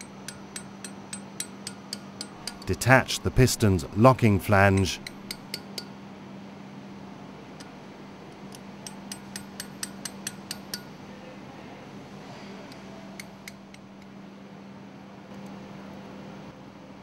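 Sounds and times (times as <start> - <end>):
hammer tapping on steel: 0.0 - 2.8, 4.8 - 5.9, 8.8 - 10.9.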